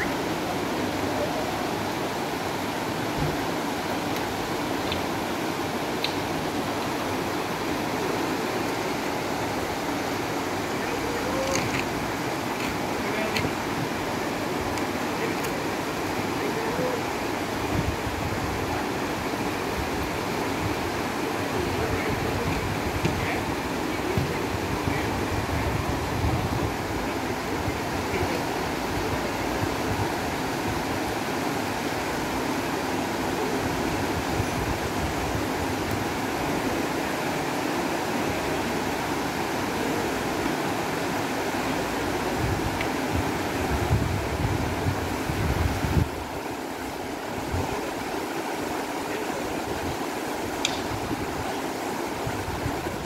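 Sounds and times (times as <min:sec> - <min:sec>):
river flowing over rocks: 0:00.0 - 0:53.0.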